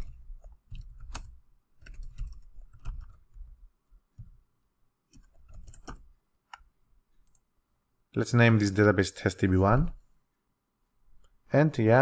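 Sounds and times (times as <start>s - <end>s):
computer keyboard typing: 0.0s - 3.6s, 5.1s - 6.1s.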